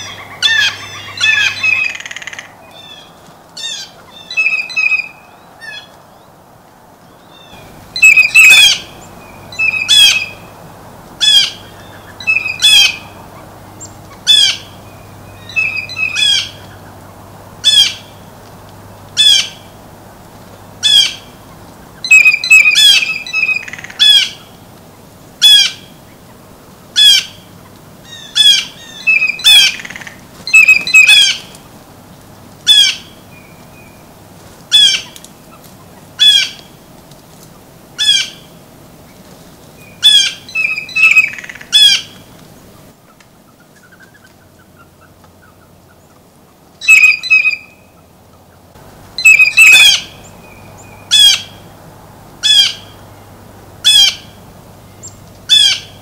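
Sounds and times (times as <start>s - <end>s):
blue jay harsh calls: 0.0s - 6.3s, 7.2s - 10.6s, 11.2s - 18.2s, 19.2s - 19.8s, 20.8s - 24.6s, 25.4s - 26.2s, 26.9s - 31.7s, 32.6s - 34.0s, 34.7s - 36.8s, 38.0s - 38.6s, 39.8s - 42.3s, 46.8s - 48.4s, 49.1s - 51.8s, 52.4s - 53.1s, 53.8s - 56.0s.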